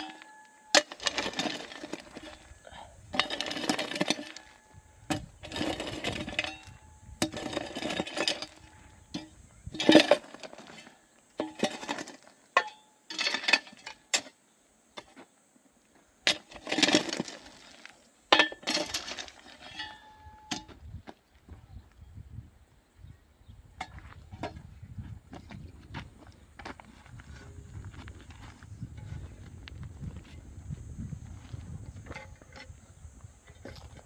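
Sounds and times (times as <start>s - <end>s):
hoe chopping into stony soil: 0.0s - 2.4s, 3.1s - 14.4s, 16.3s - 20.8s.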